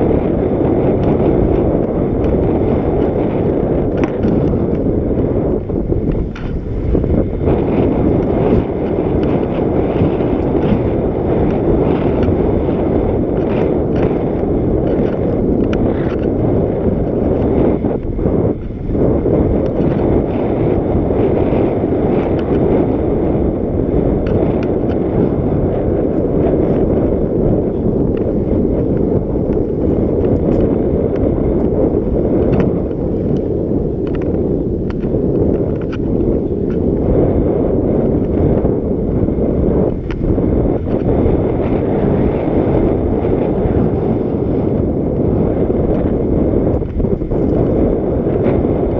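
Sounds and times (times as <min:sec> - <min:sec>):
bike tyres rolling on dirt: 0:00.0 - 0:48.9
wind rushing over microphone: 0:00.0 - 0:48.9
small clicks and ticks: 0:03.8 - 0:06.6, 0:11.4 - 0:12.4, 0:13.3 - 0:16.4, 0:22.2 - 0:22.6, 0:24.2 - 0:25.0, 0:28.1 - 0:31.8, 0:32.4 - 0:36.8, 0:39.9 - 0:41.1, 0:46.7 - 0:47.8.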